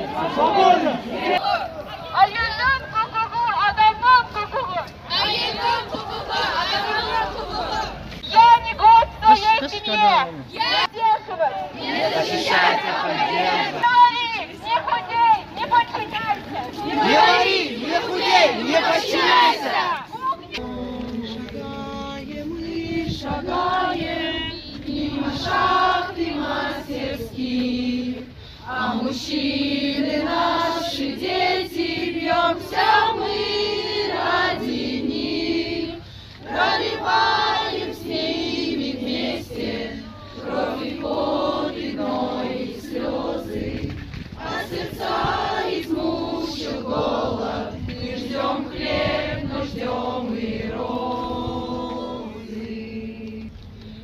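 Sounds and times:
women singing in unison: 0:16.7 - 0:53.6.

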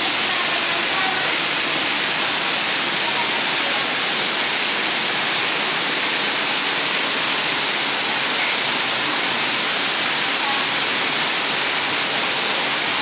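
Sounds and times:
rainwater pouring and splashing: 0:00.0 - 0:13.0.

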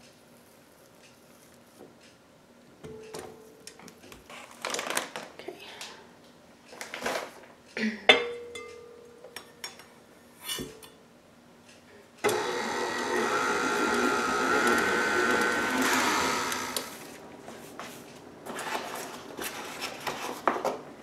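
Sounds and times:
stand mixer motor whine: 0:12.2 - 0:17.1.

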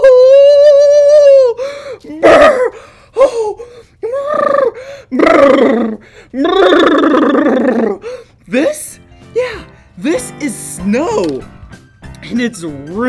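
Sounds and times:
man's held high ooh: 0:00.0 - 0:08.1
man gasping and exclaiming: 0:00.0 - 0:08.4, 0:09.3 - 0:10.0
man shivering brrr sounds: 0:00.0 - 0:08.4.

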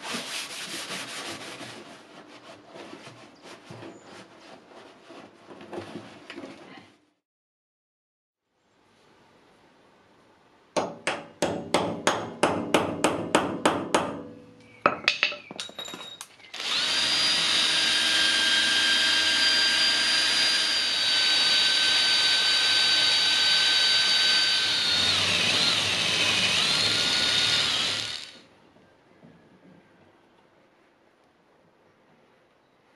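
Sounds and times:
cordless drill drilling metal: 0:16.5 - 0:28.4.

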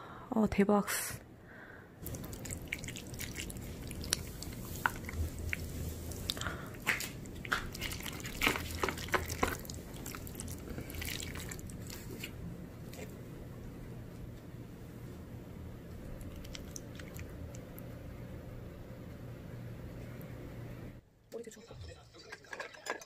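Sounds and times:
chopsticks stirring wet noodles: 0:02.0 - 0:13.1.

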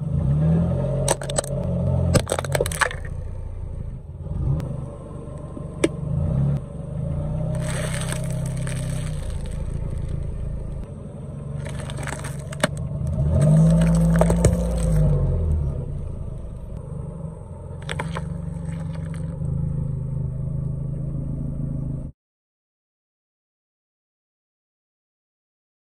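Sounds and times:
car engine running: 0:00.0 - 0:22.1
tyre crushing packaging: 0:02.2 - 0:03.1, 0:07.6 - 0:10.2, 0:11.6 - 0:15.1, 0:17.8 - 0:19.3.

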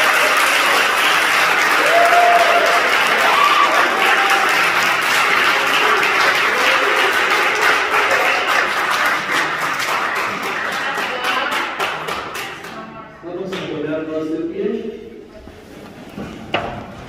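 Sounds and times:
crowd applauding: 0:00.0 - 0:12.9.

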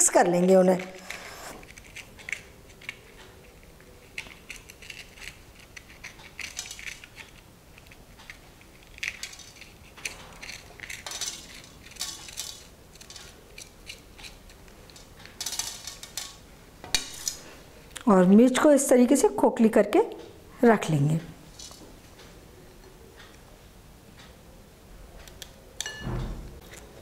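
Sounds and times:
knife scraping on steel plate: 0:00.8 - 0:01.7.

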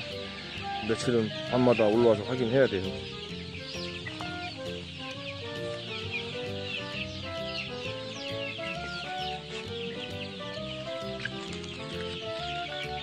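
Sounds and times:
background music: 0:00.0 - 0:13.0
chicks peeping: 0:00.0 - 0:13.0.

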